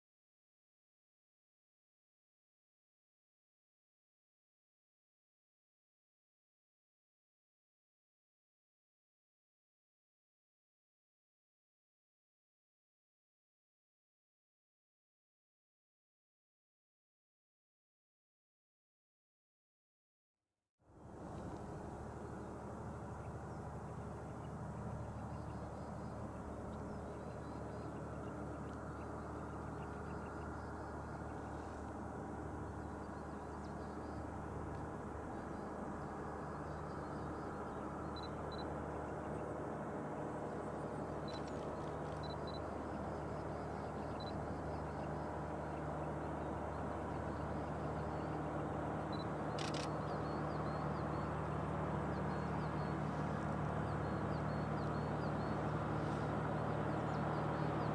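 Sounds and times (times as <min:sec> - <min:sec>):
distant diesel train engine droning: 0:21.0 - 0:57.9.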